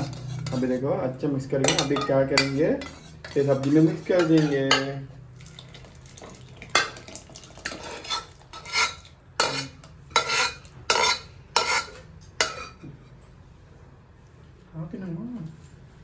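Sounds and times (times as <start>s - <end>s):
metal cookware clanking: 0.0s - 13.2s
food pouring into a pot: 5.3s - 9.2s.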